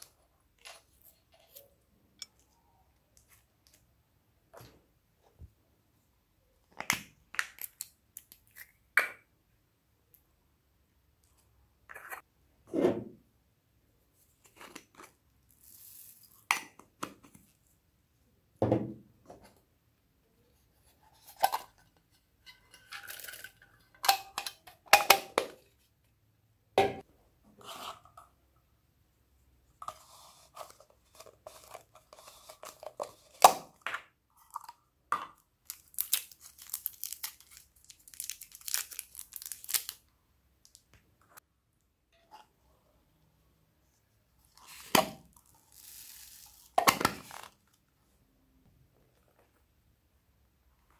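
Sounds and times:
slime crackling and crinkling: 0:35.6 - 0:40.0.

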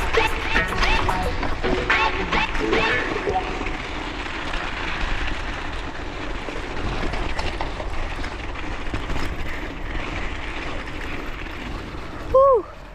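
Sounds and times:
bicycle tyres rumbling on snow: 0:00.0 - 0:12.9
bike knocks and rattles: 0:03.7 - 0:12.3.

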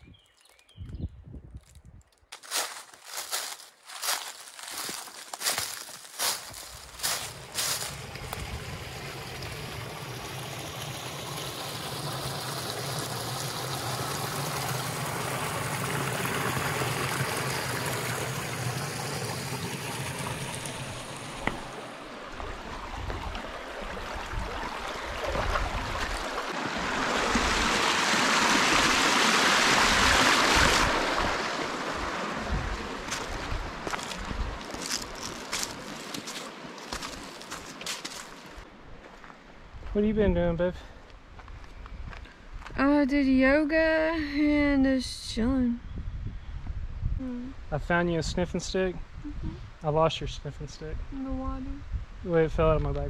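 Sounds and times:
creek trickling over stones: 0:01.7 - 0:38.7.

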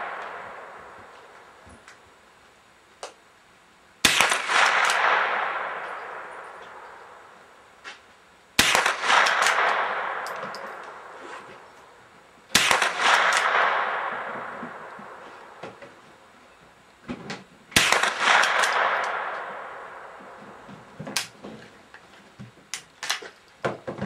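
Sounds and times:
rifle shots with echo: 0:00.0 - 0:01.5, 0:04.0 - 0:07.4, 0:08.6 - 0:15.6, 0:17.8 - 0:20.7.

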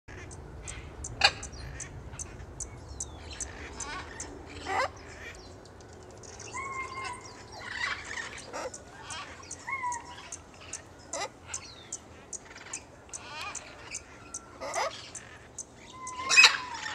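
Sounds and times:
macaw squawking: 0:00.1 - 0:02.4, 0:03.0 - 0:04.9, 0:06.5 - 0:16.9
high chirps: 0:08.6 - 0:16.7.

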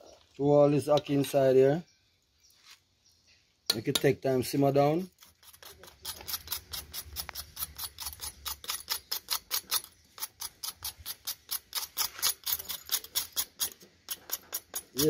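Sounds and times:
knife scraping burnt yam skin: 0:04.5 - 0:15.0.

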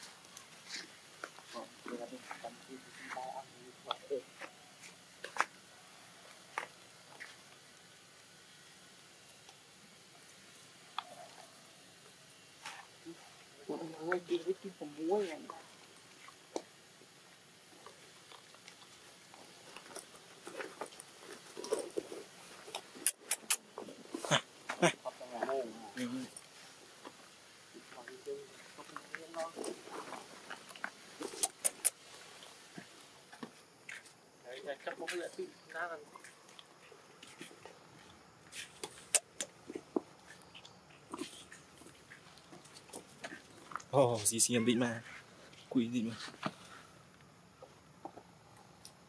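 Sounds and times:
rustling: 0:12.4 - 0:35.5
monkey chewing and smacking: 0:17.8 - 0:24.2, 0:29.6 - 0:32.9, 0:36.1 - 0:43.9
sharp clicks: 0:22.8 - 0:23.7, 0:38.8 - 0:39.6.

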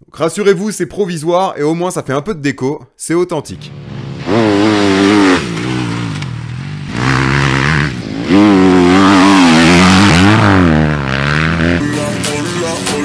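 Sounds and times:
motorbike engine revving: 0:03.6 - 0:12.5.

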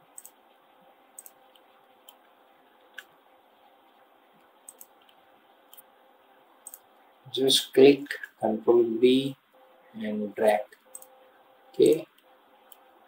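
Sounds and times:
low steady hum: 0:00.0 - 0:13.0
computer mouse and keyboard clicks: 0:00.1 - 0:00.4, 0:01.2 - 0:03.1, 0:04.4 - 0:05.9, 0:06.6 - 0:06.9, 0:10.4 - 0:11.1.

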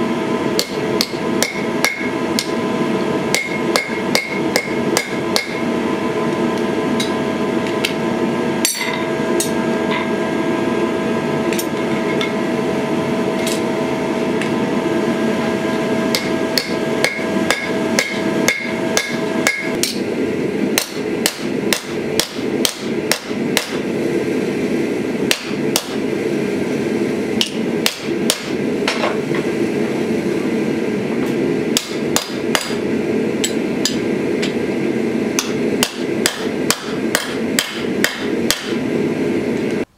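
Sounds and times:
steady hum: 0:00.0 - 0:39.9
hammer striking metal on anvil: 0:00.5 - 0:02.6, 0:03.3 - 0:05.7, 0:08.6 - 0:10.2, 0:16.1 - 0:20.1, 0:20.8 - 0:23.8, 0:25.3 - 0:26.0, 0:27.4 - 0:29.2, 0:31.7 - 0:32.8, 0:33.4 - 0:34.6, 0:35.4 - 0:38.8.

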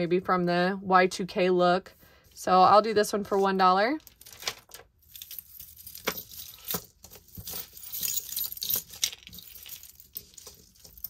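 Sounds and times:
high metallic jingling of beads: 0:05.0 - 0:11.0
jewelry clinking and jangling: 0:05.0 - 0:11.0.

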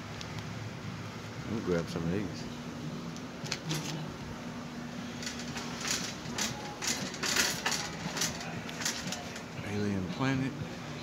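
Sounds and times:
shopping cart rattling: 0:05.2 - 0:09.7.

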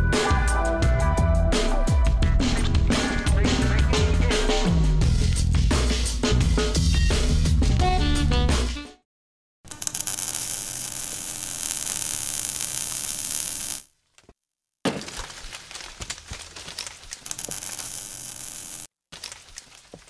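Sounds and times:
crackling clicks: 0:09.7 - 0:13.9, 0:15.2 - 0:20.0.

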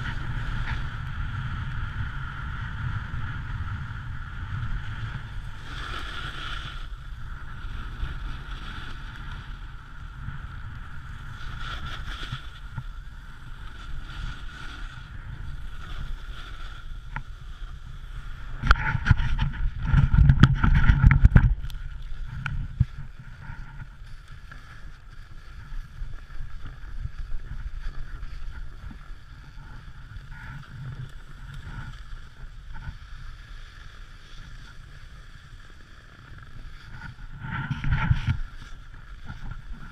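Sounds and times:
wind rushing past microphone: 0:00.0 - 0:24.2, 0:36.9 - 0:39.9
snowboard scraping over snow: 0:00.0 - 0:39.9.

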